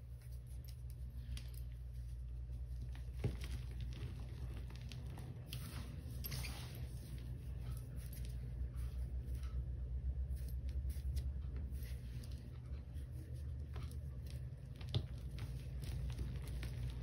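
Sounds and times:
powder clumps crunching: 2.1 - 7.4, 10.3 - 17.0.

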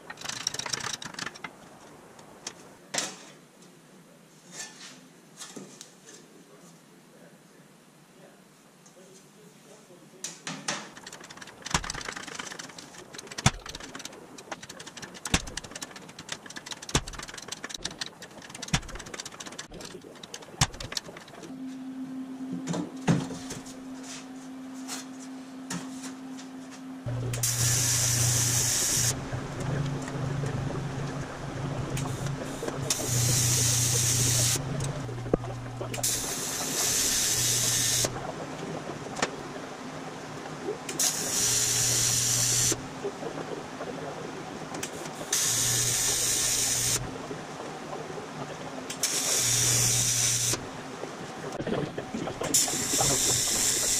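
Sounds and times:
regular knocks: 10.8 - 21.5
steady hum: 10.9 - 53.9
tig welding arc buzzing: 27.2 - 29.2.

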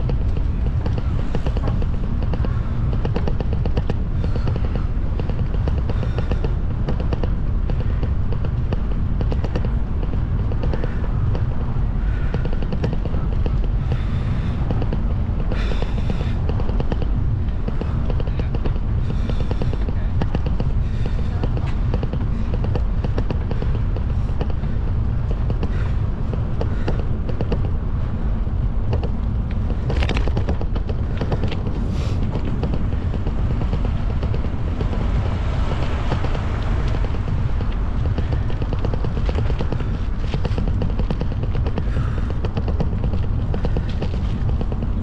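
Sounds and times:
vehicle rumble: 0.0 - 45.0
wind buffeting microphone: 0.0 - 45.0.

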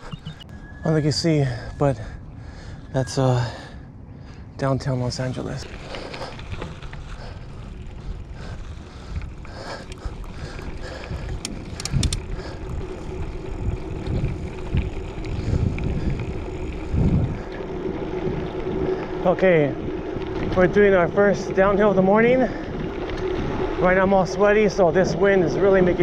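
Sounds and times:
steady hum: 0.0 - 14.6
wind buffeting microphone: 0.0 - 26.0
bike rattles and clicks: 4.8 - 26.0.

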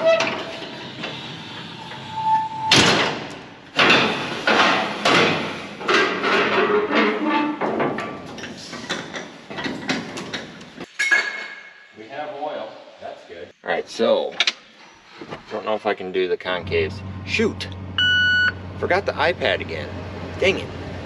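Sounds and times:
metal ladder squeak: 0.0 - 0.8
metal knocks and bangs: 2.7 - 10.6.

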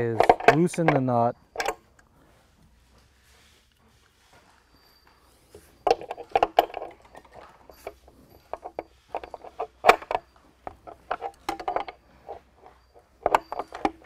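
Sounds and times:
wrench clinking on nut: 0.0 - 2.0, 5.6 - 14.0.

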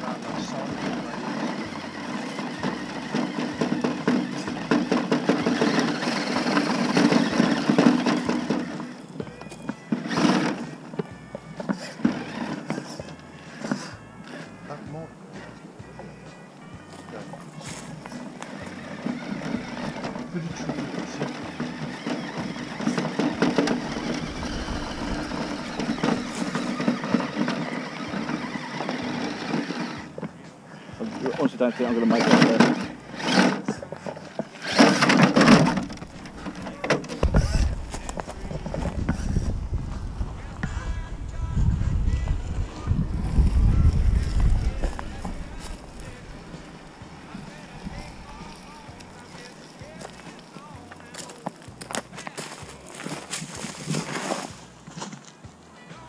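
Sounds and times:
toy car motor whine: 0.0 - 14.1, 17.7 - 30.2, 31.0 - 50.7
tyres knocking on rough ground: 33.6 - 39.5.

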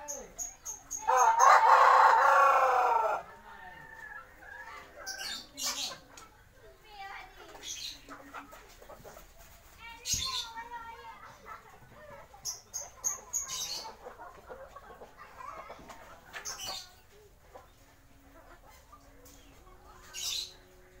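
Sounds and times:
fowl clucking: 11.2 - 19.3.

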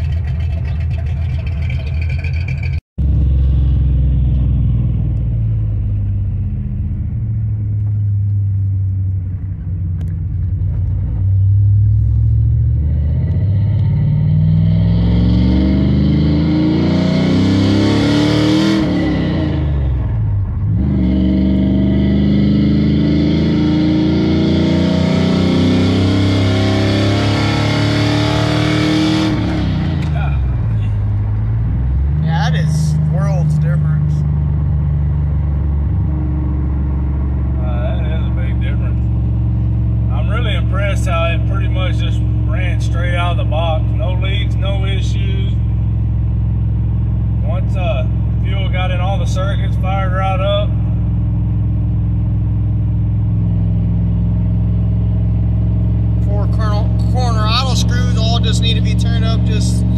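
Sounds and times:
truck engine idling with lope: 0.0 - 2.8
truck engine accelerating: 0.0 - 59.9.

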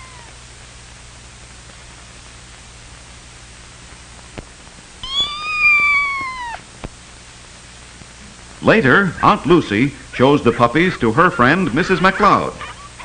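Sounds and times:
cat meowing: 0.0 - 0.4, 5.0 - 6.7.

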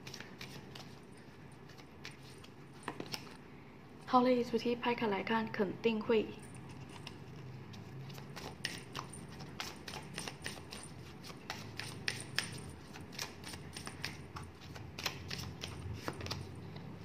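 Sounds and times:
cards shuffled on a table: 0.0 - 1.0, 1.6 - 3.4, 6.7 - 17.0.

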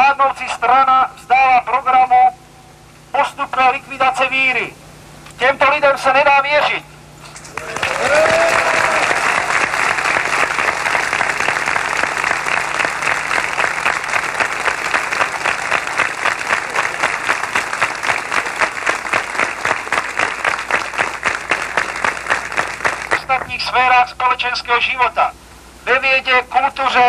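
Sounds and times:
crowd applauding: 7.3 - 23.6.

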